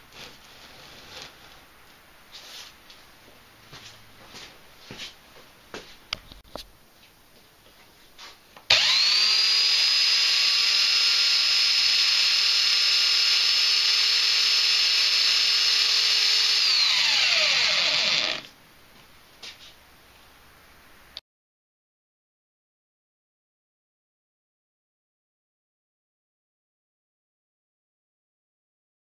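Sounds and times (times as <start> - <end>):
belt sander motor whining: 8.7 - 18.5.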